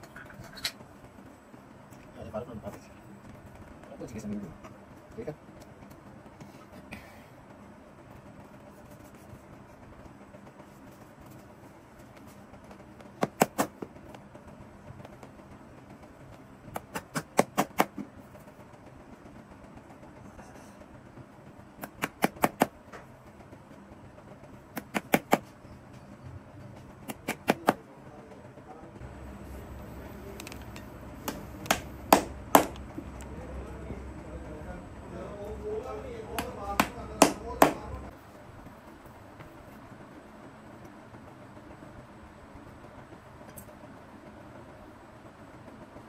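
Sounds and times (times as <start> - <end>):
hammer tapping leather: 24.8 - 25.5, 31.2 - 32.8, 36.4 - 37.9.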